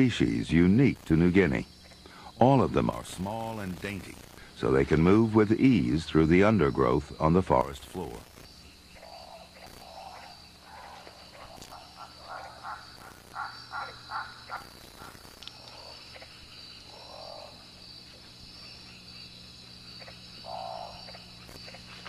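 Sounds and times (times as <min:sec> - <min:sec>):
high-pitched insect chorus: 0:00.0 - 0:22.0
lower animal calls: 0:20.0 - 0:22.0.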